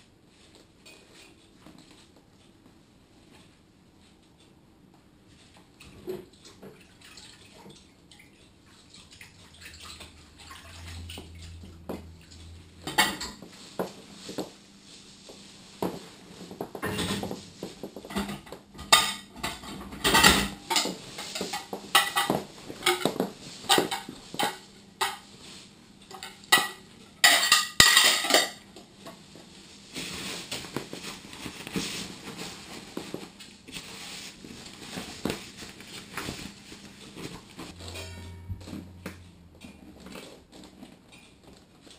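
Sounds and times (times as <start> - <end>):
water splashing: 6.6 - 12.5
dishes and cutlery clinking: 18.1 - 25.3, 26.0 - 28.7, 37.7 - 40.3.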